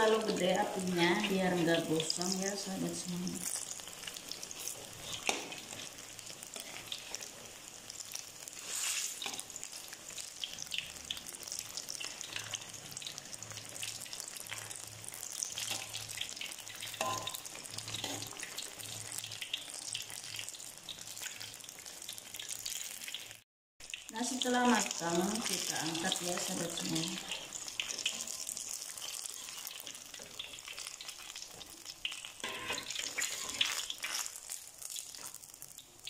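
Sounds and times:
deep-frying sizzle in oil: 0.0s - 36.0s
metal spatula scraping wok: 4.5s - 6.0s, 8.6s - 9.5s, 16.8s - 18.5s, 32.4s - 34.3s.

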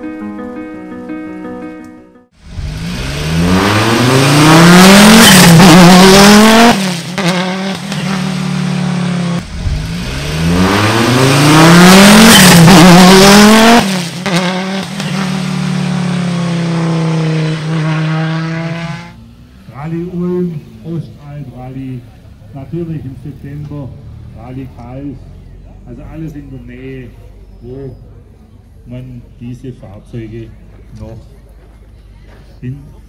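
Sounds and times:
race car engine accelerating: 2.4s - 27.4s.

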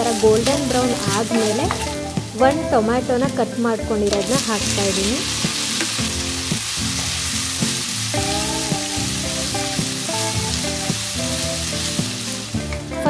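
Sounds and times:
wooden spatula stirring: 0.0s - 2.2s
vegetables sizzling in hot oil: 0.0s - 13.0s.

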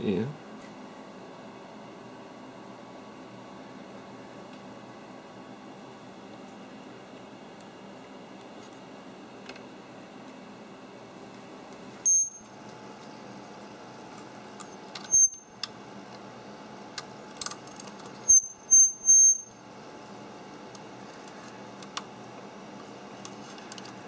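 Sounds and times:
high-pitched laptop chirps: 12.1s - 12.5s, 15.1s - 15.5s, 18.3s - 19.6s.

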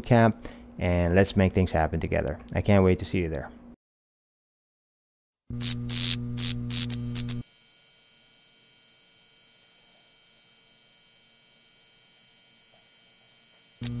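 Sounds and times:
background hum tones: 5.5s - 7.4s, 8.0s - 14.0s
loud humming: 13.6s - 14.0s.

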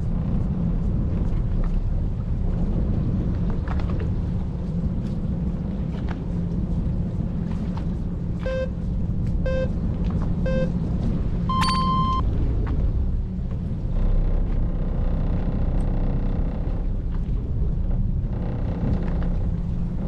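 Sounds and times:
boat engine rumbling: 0.0s - 20.0s
short beeps: 8.4s - 8.8s, 9.5s - 9.7s, 10.5s - 10.7s, 11.5s - 12.2s.

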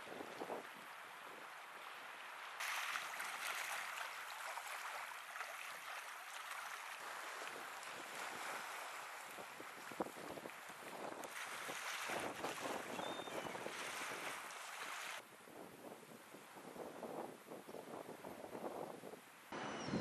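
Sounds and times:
waves lapping on shore: 0.0s - 15.2s
steady wind: 7.0s - 20.0s.

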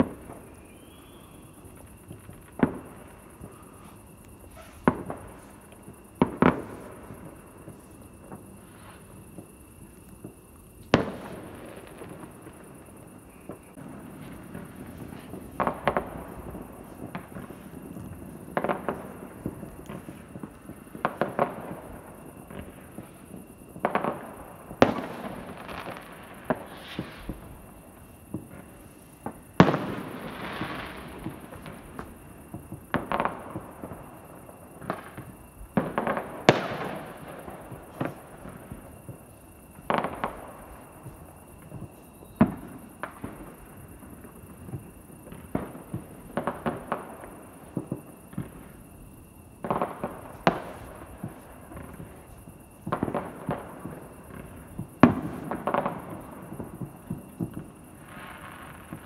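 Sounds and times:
fireworks banging: 0.0s - 33.9s.

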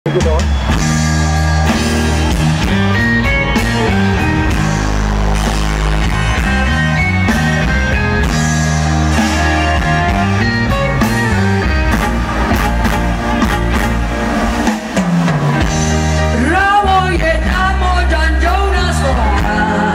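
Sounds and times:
drum kit beat: 0.0s - 19.9s
electric guitars: 0.1s - 19.9s.

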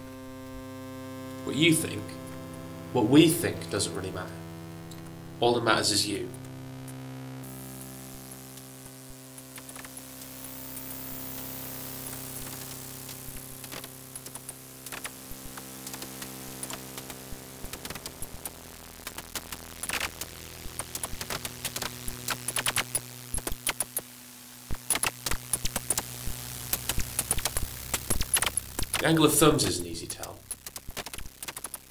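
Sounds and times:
steady low drone with hiss: 0.0s - 31.9s
sharp clicks and taps: 30.4s - 31.9s.

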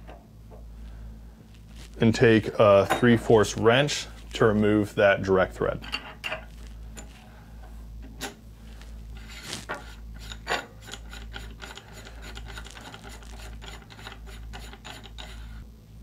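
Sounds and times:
metal clicks and rubbing: 9.2s - 15.5s.

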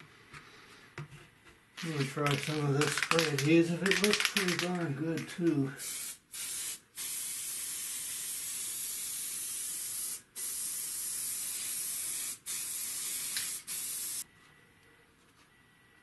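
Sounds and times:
aerosol can spraying: 5.8s - 14.2s.

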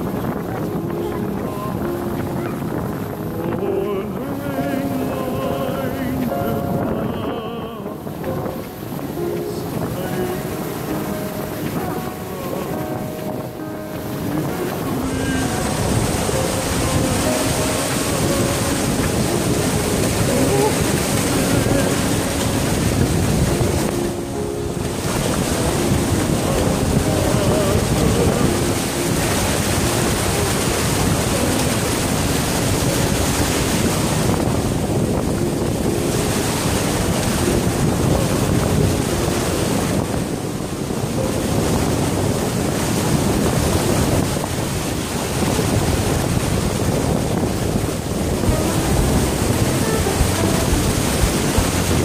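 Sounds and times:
sea surf breaking on beach: 0.0s - 52.0s
wind buffeting microphone: 0.0s - 52.0s.

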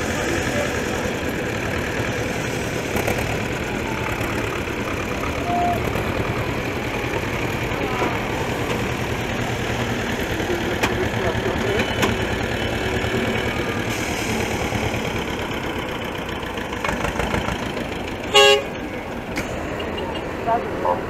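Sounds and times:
tractor engines running slowly: 0.0s - 21.0s
vehicle horn toot: 5.4s - 5.9s, 18.3s - 18.8s.

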